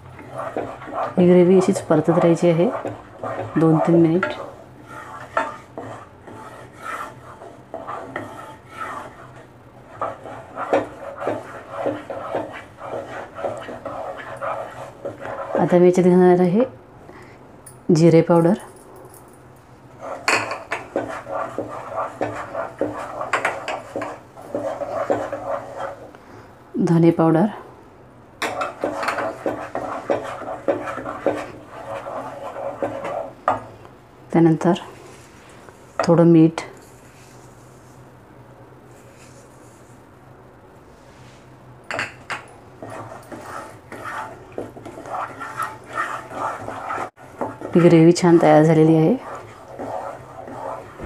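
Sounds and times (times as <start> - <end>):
wooden spatula scraping a pot: 0.0 - 16.2, 19.9 - 26.2, 28.4 - 33.8, 42.8 - 51.0
spatula knocking against pan: 10.6 - 14.0.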